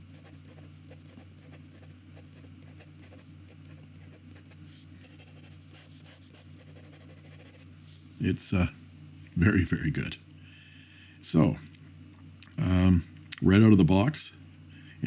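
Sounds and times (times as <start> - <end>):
pen nib scratching paper: 0.0 - 7.6
steady low hum: 0.0 - 15.0.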